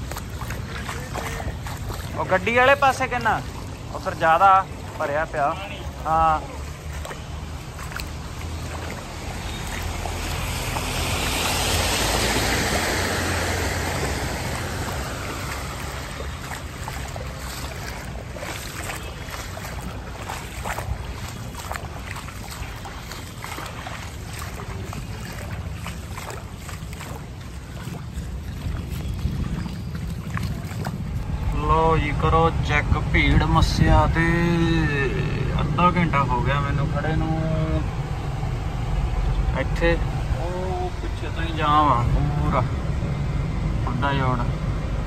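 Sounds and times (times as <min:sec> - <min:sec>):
small splashes and ticks: 0:00.0 - 0:31.5
floodwater sloshing and splashing: 0:00.0 - 0:45.0
low steady rumble: 0:00.0 - 0:45.0.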